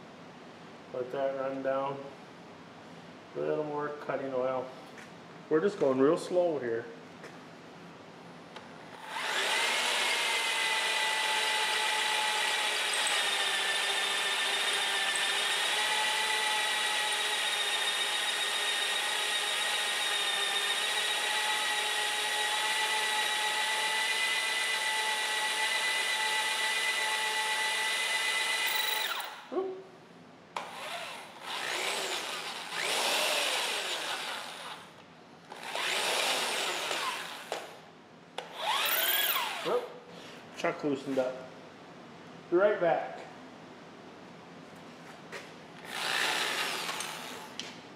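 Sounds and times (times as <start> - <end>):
electric drill whining: 9.0 - 29.5, 30.6 - 34.9, 35.5 - 37.8, 38.4 - 39.8, 45.8 - 47.6.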